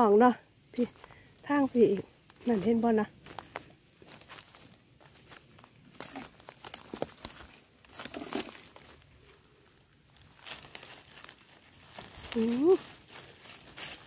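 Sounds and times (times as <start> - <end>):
dry leaves crackling underfoot: 0.0 - 14.0
hand pushing through leaves: 4.0 - 9.0, 9.6 - 14.0.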